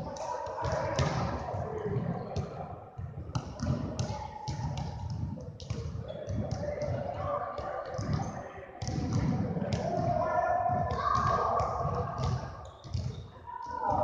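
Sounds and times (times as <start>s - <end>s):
basketballs bouncing on wood floor: 2.4s - 13.3s.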